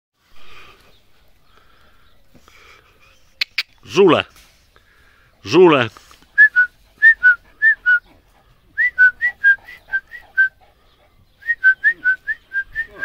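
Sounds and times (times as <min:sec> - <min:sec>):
person chirping with lips: 0:03.1 - 0:03.9.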